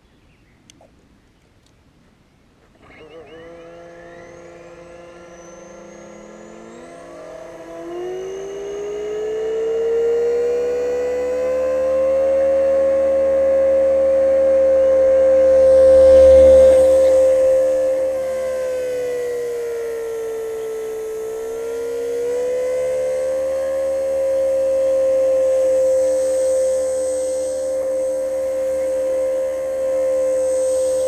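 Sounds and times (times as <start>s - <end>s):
rc helicopter motor whine: 2.6s - 31.0s
rotor wash rumble: 10.0s - 31.0s.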